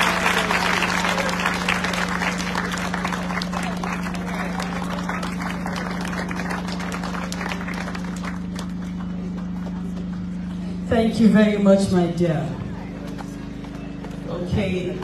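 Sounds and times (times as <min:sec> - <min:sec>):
crowd applauding: 0:00.0 - 0:10.6
steady low hum: 0:00.0 - 0:15.0.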